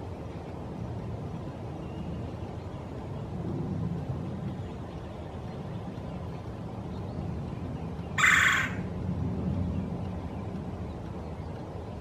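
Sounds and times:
woodpecker rolling call: 8.2s - 8.9s.

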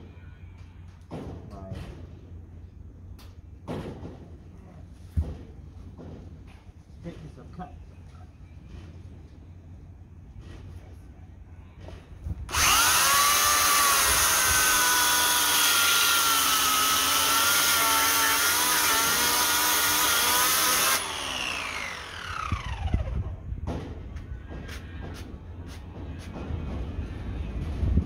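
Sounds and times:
electric chainsaw whining: 12.5s - 23.4s.

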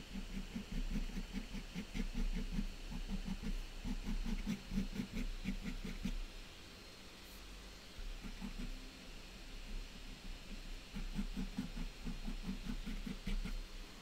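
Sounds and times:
pen strokes on paper: 0.0s - 6.3s, 10.2s - 13.7s.

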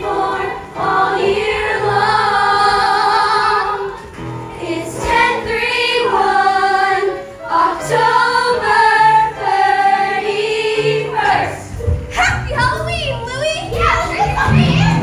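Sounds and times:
group singing in chorus: 0.0s - 11.7s.

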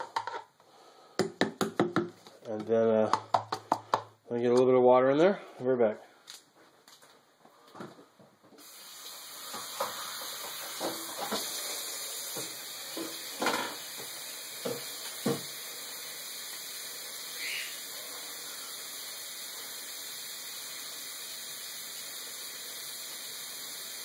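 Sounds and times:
bottle knocking on sink: 1.2s - 2.1s, 14.6s - 15.5s
tap water running into bottle: 8.6s - 24.0s.

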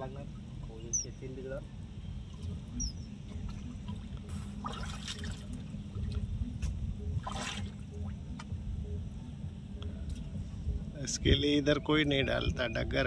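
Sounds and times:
steady low rumble: 0.0s - 13.0s
water splashing: 3.2s - 8.2s.

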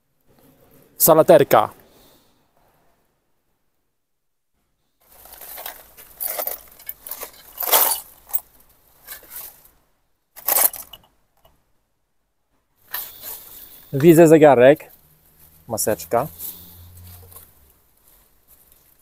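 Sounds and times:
rubbish bag rustling: 5.0s - 9.8s, 10.4s - 11.1s, 12.8s - 14.2s, 16.4s - 19.0s
small hard objects clinking: 5.1s - 9.6s, 10.4s - 11.1s.

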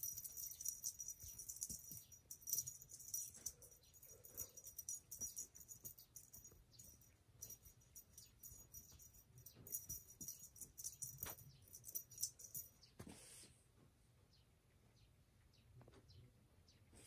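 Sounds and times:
small bell jingling: 0.0s - 12.9s
soft rustle: 9.7s - 13.9s.

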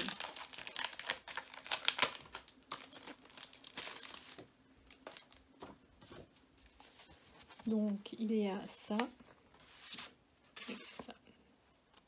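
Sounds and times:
plastic packaging crinkling: 0.0s - 5.8s.

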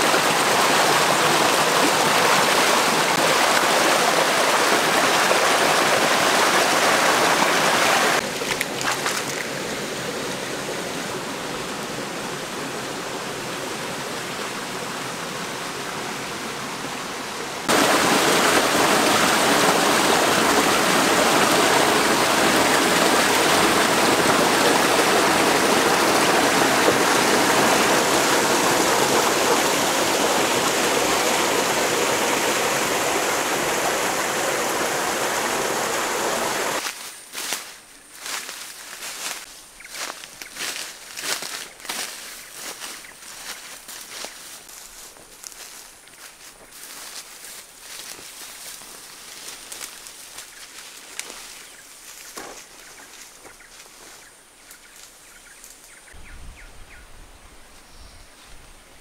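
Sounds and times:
stream water running over rocks: 0.0s - 56.1s.

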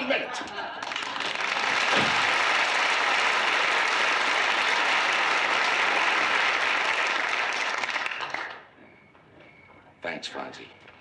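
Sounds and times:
studio audience applauding: 0.8s - 8.7s.

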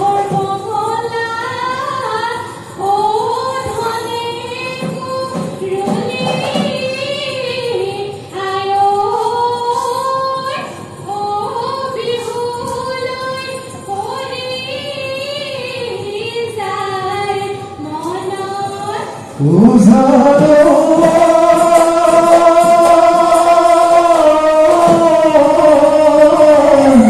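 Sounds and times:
woman singing through microphone: 0.0s - 27.0s
full band playing: 19.4s - 27.0s.

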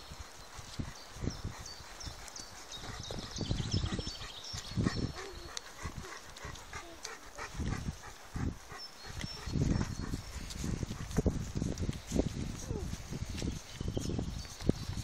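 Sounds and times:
dog panting: 0.2s - 13.0s
footsteps on dirt track: 9.1s - 15.0s.

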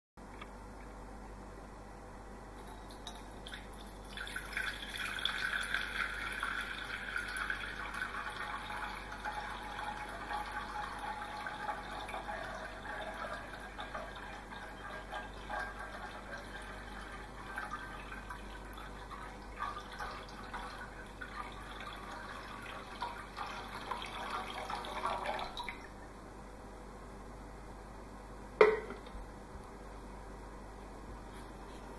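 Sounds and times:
water pouring into glass bowl: 2.6s - 26.0s.

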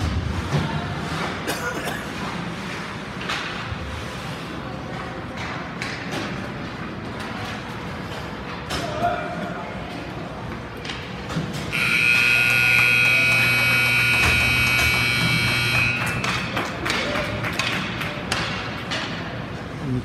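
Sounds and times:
arena horn: 11.7s - 16.2s.

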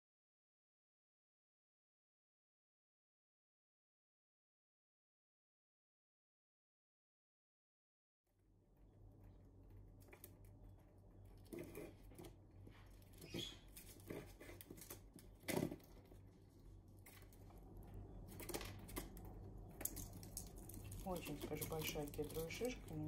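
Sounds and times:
faint crackles and scrapes: 8.7s - 23.0s
squirrel gnawing pine cone: 8.8s - 23.0s.

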